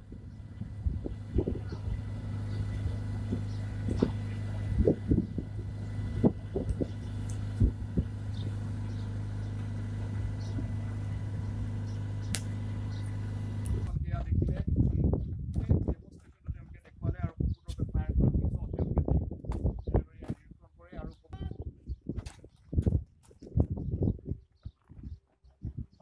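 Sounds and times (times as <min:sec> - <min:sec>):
engine humming: 0:00.0 - 0:17.2
sharp click: 0:12.2 - 0:12.6.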